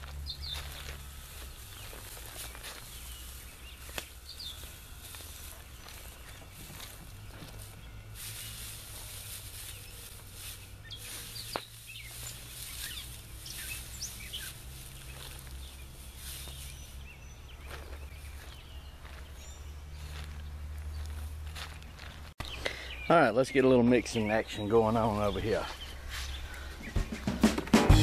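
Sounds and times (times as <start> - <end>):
low steady hum: 0.0 - 22.2
straw rustling underfoot: 0.0 - 22.6, 24.2 - 27.3.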